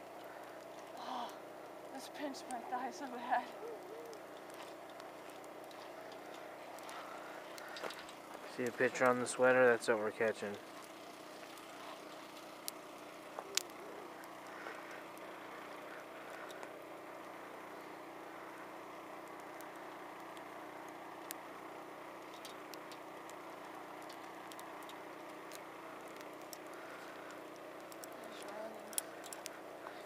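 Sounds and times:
sharp clicks and ticks: 19.2 - 30.0.

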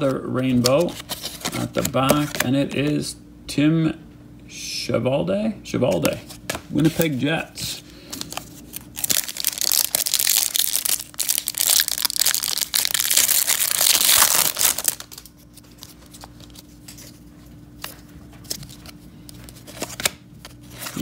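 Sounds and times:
wrapper tearing and crinkling: 8.3 - 16.6.

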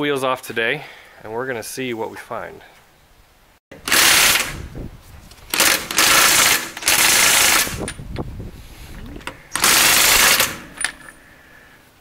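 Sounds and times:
impact wrench hammering: 5.5 - 7.9, 9.5 - 11.2.

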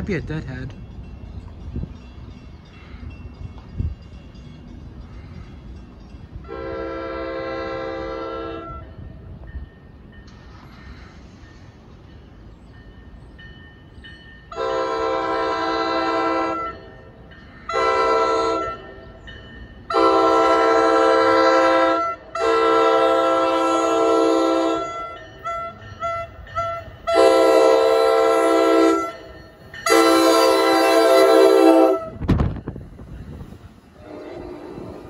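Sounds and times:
train horn blasts: 6.4 - 9.1, 14.5 - 17.1, 17.7 - 19.2, 19.9 - 32.6, 34.0 - 35.0.

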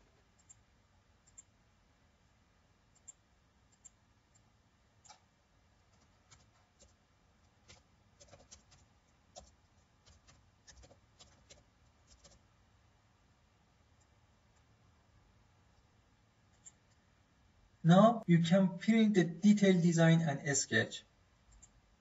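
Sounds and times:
keyboard typing: 2.9 - 5.3, 5.9 - 12.4.

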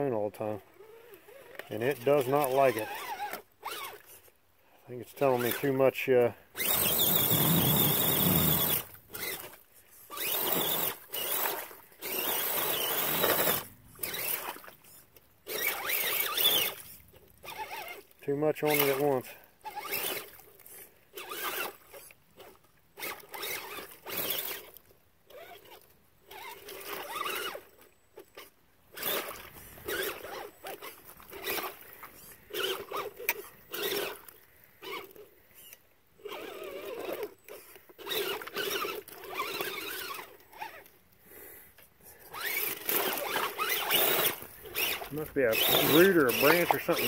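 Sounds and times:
electric motor whining in bursts: 6.6 - 9.5, 10.2 - 14.5, 42.3 - 47.0
tyres churning in mud: 42.3 - 47.0.

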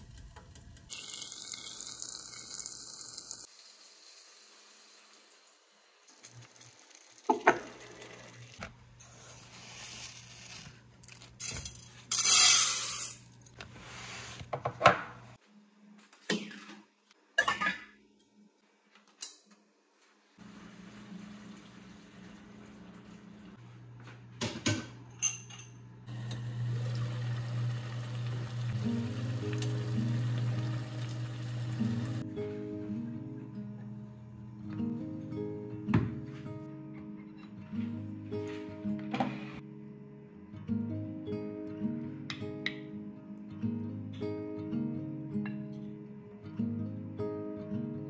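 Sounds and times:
dishes and cutlery clinking: 17.4 - 18.0, 24.4 - 25.8.

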